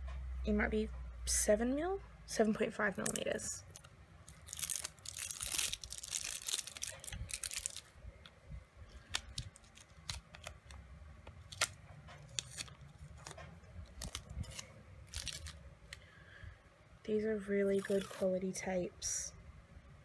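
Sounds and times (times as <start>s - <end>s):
tape rustling and tearing: 3.0s - 8.3s, 8.9s - 16.0s, 17.6s - 18.4s.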